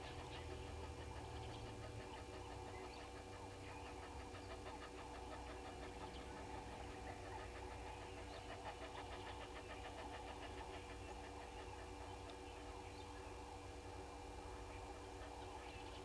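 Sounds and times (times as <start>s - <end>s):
chirping bird calls: 0.0s - 16.0s
steady low hum: 0.0s - 16.0s.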